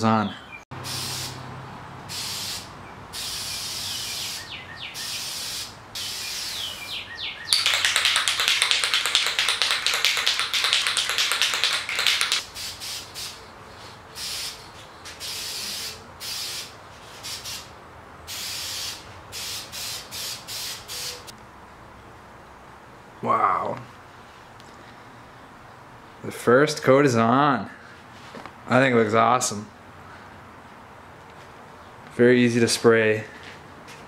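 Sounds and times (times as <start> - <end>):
aerosol spray can hissing: 0.8 - 1.4, 2.1 - 4.4, 7.6 - 13.4, 18.3 - 21.2.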